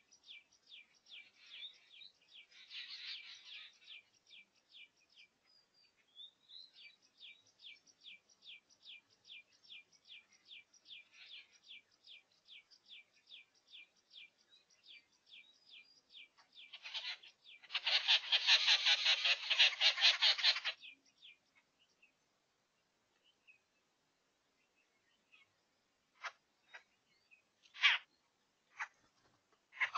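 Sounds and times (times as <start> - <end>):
high sharp animal chirps: 16.6 - 21.0, 27.7 - 28.1
harsh pulsing rasping call: 16.7 - 20.9.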